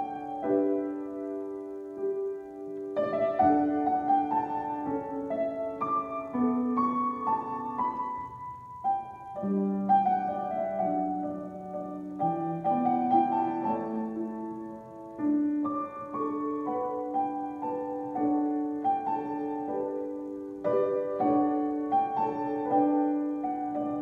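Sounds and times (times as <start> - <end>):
solo piano improvisation: 0.0 - 24.0.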